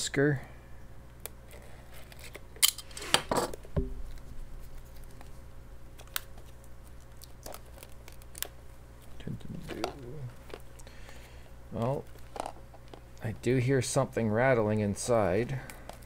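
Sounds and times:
crinkling rustle: 4.0 - 13.4.

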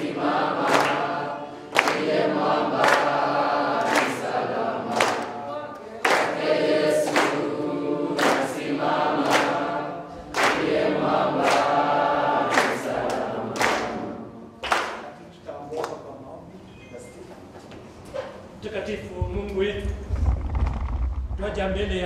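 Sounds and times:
young voices singing: 0.0 - 14.6
hand claps: 0.6 - 1.1, 1.7 - 7.5, 8.2 - 9.7, 10.3 - 15.2, 15.8 - 16.0.

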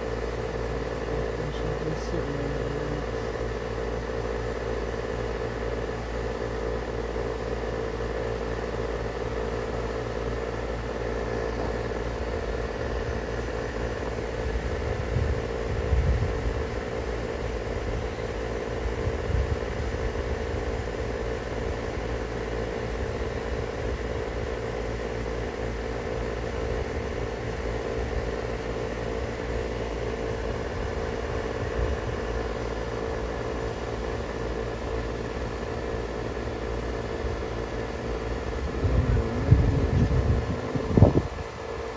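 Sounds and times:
steady mechanical hum: 0.0 - 41.9
low rumbles: 38.6 - 41.4.

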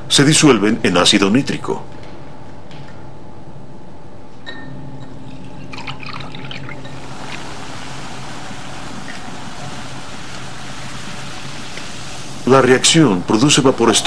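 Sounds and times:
low steady hum: 0.0 - 14.0
liquid pouring: 5.2 - 14.0
fizzing hiss: 5.9 - 14.0.

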